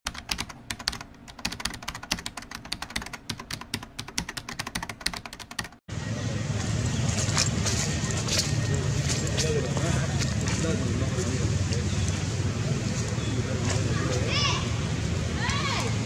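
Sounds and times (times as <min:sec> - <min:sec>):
keyboard typing: 0:00.1 - 0:05.8
outdoor background noise: 0:05.9 - 0:16.0.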